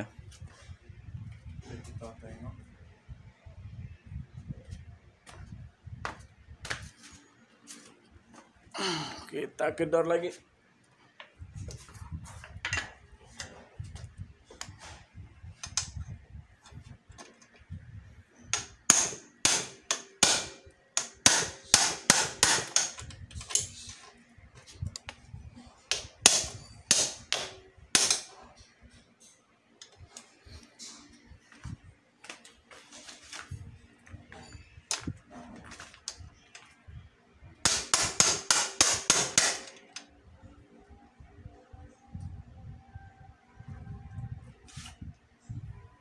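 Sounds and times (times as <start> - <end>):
hammer striking metal: 18.6 - 23.0, 25.9 - 28.4, 37.7 - 39.7.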